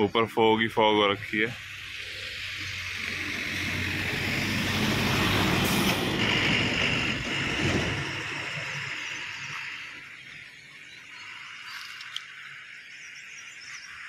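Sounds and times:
truck passing: 0:01.5 - 0:10.0.

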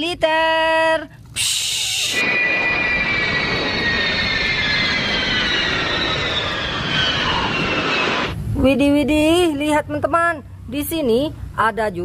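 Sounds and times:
jet whine falling in pitch: 0:01.4 - 0:08.4
loud jet roar: 0:01.4 - 0:08.5.

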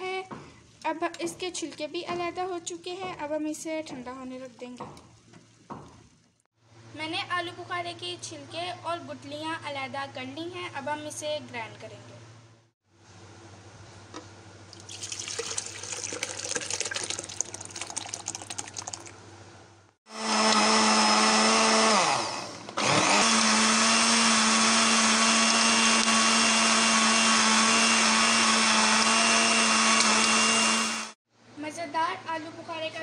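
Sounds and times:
liquid and handling sounds: 0:14.7 - 0:19.2
electric blender grinding: 0:20.1 - 0:31.2.

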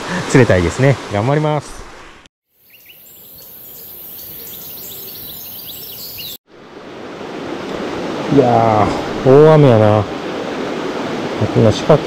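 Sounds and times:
small birds chirping: 0:02.6 - 0:06.4
river water rushing: 0:02.9 - 0:11.7.

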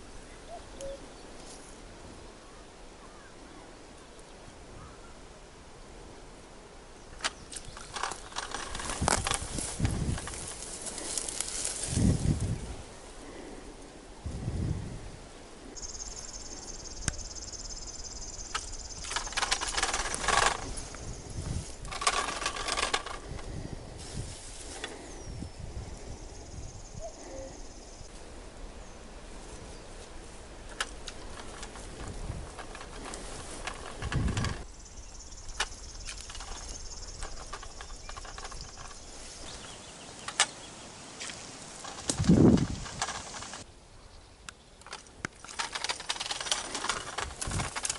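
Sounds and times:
plants and clothing rustling: 0:00.0 - 0:47.9
insect chirring: 0:15.8 - 0:23.5, 0:24.7 - 0:28.1, 0:30.8 - 0:40.6.

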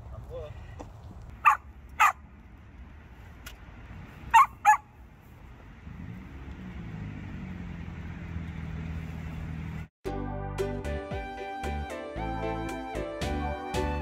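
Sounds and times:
puppy barking: 0:01.4 - 0:02.2, 0:04.3 - 0:04.9.

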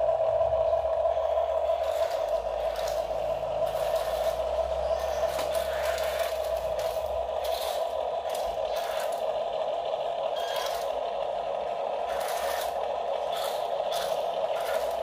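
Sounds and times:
electric gear-motor whine: 0:00.0 - 0:15.0
gritty scraping and rattling: 0:01.8 - 0:09.3, 0:10.4 - 0:11.0, 0:12.0 - 0:15.0.

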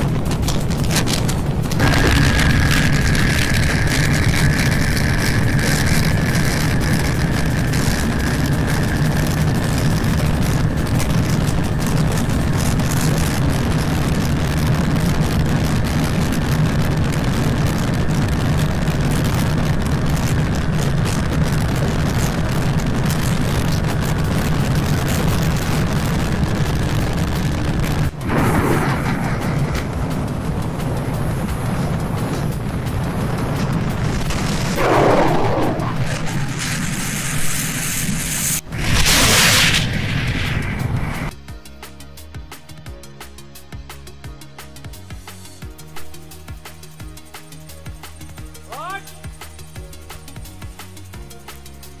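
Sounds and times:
motorcycle engine running: 0:00.0 - 0:38.9
wind and road noise: 0:00.0 - 0:52.0.

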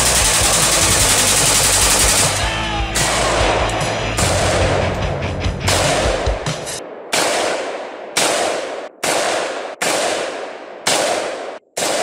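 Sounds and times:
rapid rifle gunfire: 0:00.0 - 0:02.4, 0:05.7 - 0:06.4, 0:07.1 - 0:12.0.

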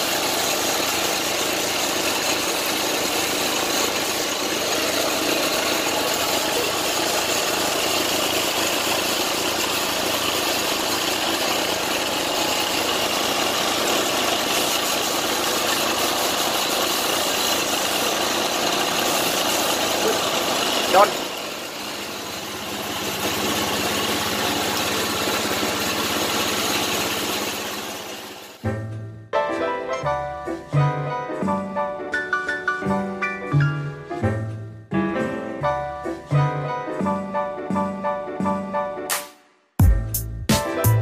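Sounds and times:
small engine idling: 0:00.0 - 0:28.6.

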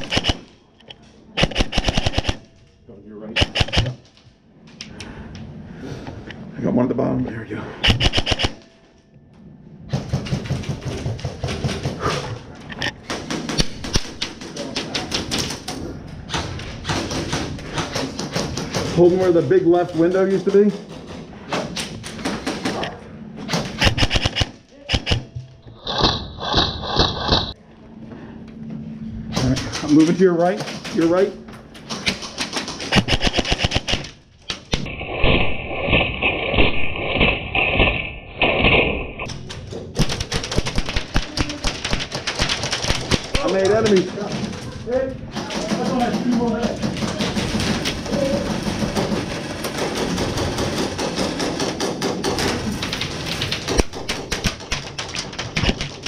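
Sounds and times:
airsoft gun rapid clicks: 0:00.0 - 0:00.5, 0:01.4 - 0:02.4, 0:03.4 - 0:04.0, 0:07.8 - 0:08.6, 0:23.5 - 0:25.3, 0:31.9 - 0:34.9, 0:40.0 - 0:44.3, 0:49.7 - 0:56.0
airsoft guns ticking: 0:00.0 - 0:02.5, 0:23.6 - 0:25.3, 0:29.6 - 0:34.9, 0:39.2 - 0:44.7
pellets striking plywood: 0:09.9 - 0:12.1, 0:13.0 - 0:22.9, 0:37.2 - 0:56.0.

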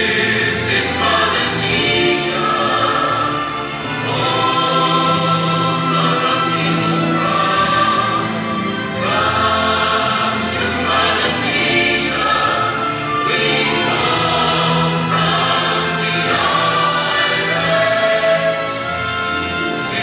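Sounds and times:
backing music: 0:00.0 - 0:20.0
choir singing held chords: 0:00.0 - 0:20.0.

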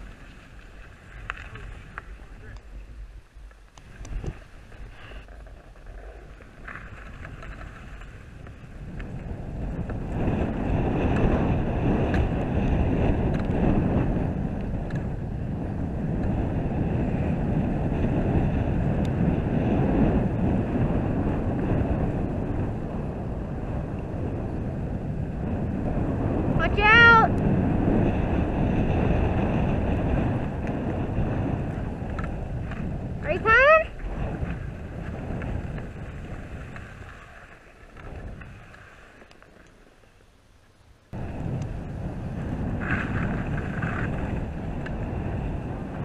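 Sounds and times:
skis scraping over snow: 0:00.0 - 0:26.4, 0:27.5 - 0:40.2, 0:41.2 - 0:46.0
wind buffeting microphone: 0:00.0 - 0:39.6, 0:41.1 - 0:46.0.

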